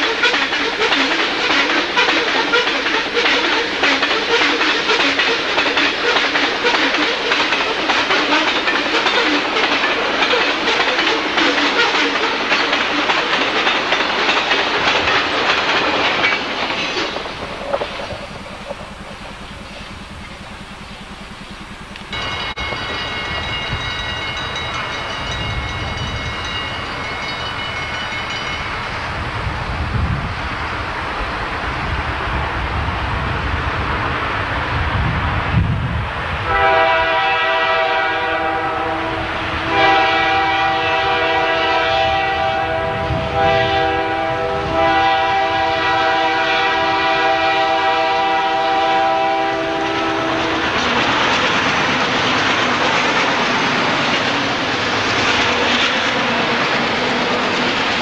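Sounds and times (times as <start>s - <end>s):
wheels clattering over rail joints: 0.0s - 28.8s, 49.6s - 58.0s
freight train rumbling past: 0.0s - 58.0s
low rumble with high tones: 17.1s - 22.2s.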